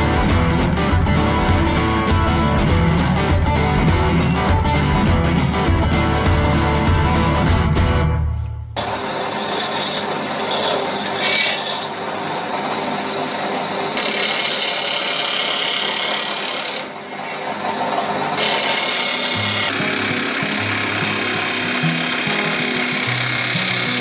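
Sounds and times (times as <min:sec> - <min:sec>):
sanding disc grinding steel blade: 0:08.8 - 0:24.0.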